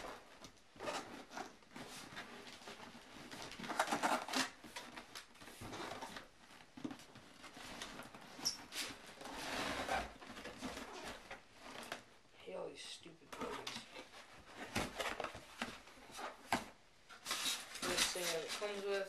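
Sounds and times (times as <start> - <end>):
cardboard box scraping on carpet: 8.6 - 11.3.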